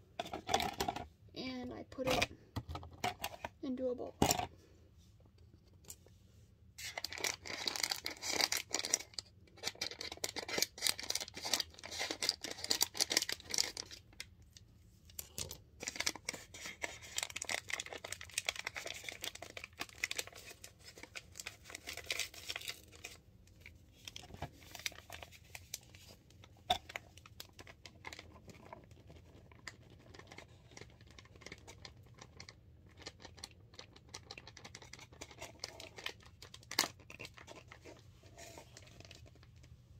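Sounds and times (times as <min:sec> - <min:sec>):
plastic bag crinkling: 0:06.8 - 0:14.0, 0:15.3 - 0:23.2.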